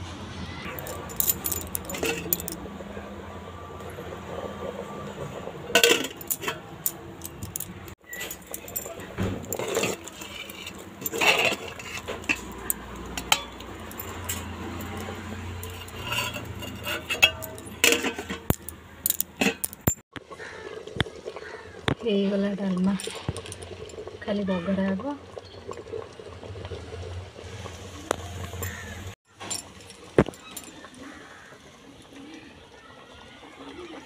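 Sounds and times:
metal pot and lid clinking: 0:00.7 - 0:02.7, 0:05.7 - 0:20.0.

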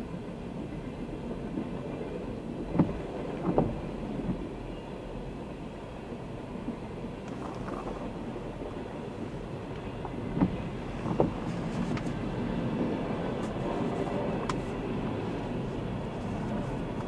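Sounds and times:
freight train rumbling past: 0:07.9 - 0:17.0.

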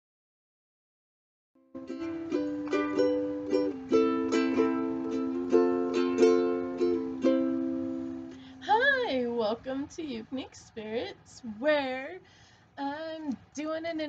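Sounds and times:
ukulele picking: 0:01.7 - 0:09.3.

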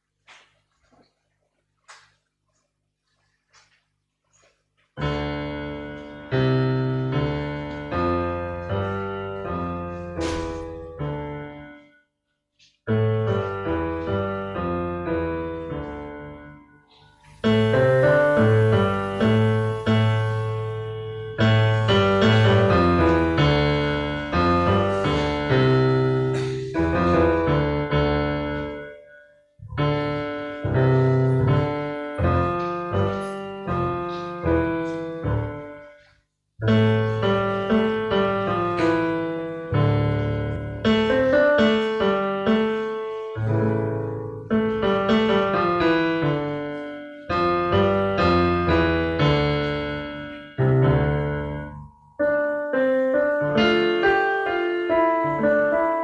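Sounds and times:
solo piano piece: 0:04.4 - 0:12.0, 0:12.8 - 0:56.0.

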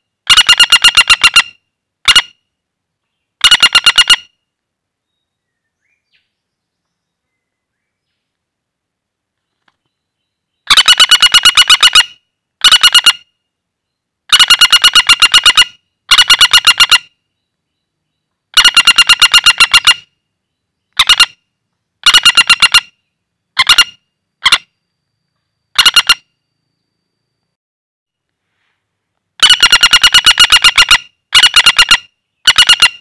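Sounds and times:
woodpecker rattling call: 0:00.0 - 0:02.4, 0:03.4 - 0:04.4, 0:10.6 - 0:13.3, 0:14.3 - 0:17.4, 0:18.5 - 0:20.2, 0:20.8 - 0:21.4, 0:22.0 - 0:24.7, 0:25.7 - 0:26.3, 0:29.4 - 0:33.0.

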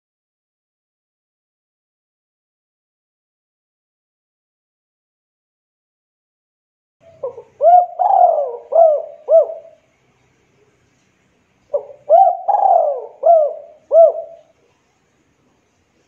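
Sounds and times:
dove cooing: 0:07.1 - 0:09.8, 0:11.7 - 0:14.6.

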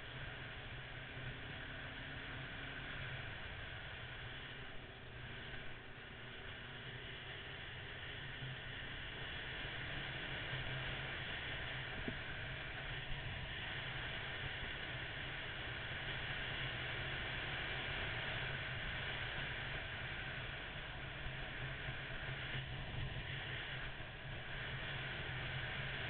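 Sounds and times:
motorcycle engine drone: 0:00.0 - 0:26.0
wind rushing over microphone: 0:21.7 - 0:26.0.

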